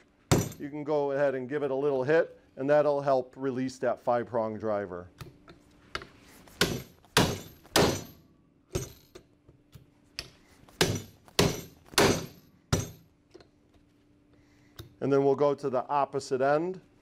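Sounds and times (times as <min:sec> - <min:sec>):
hammer striking metal driver: 0:06.0 - 0:09.2, 0:10.2 - 0:13.0.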